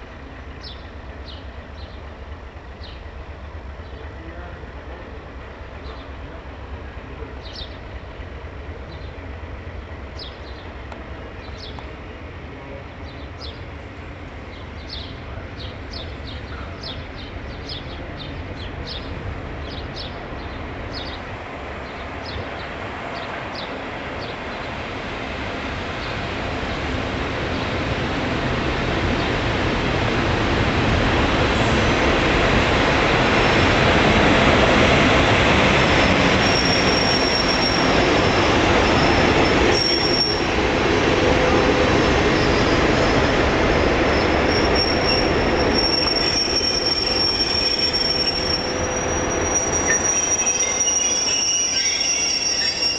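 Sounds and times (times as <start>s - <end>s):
diesel locomotive passing: 0.0s - 52.9s
high wheel squeal: 35.7s - 40.7s, 41.5s - 52.9s.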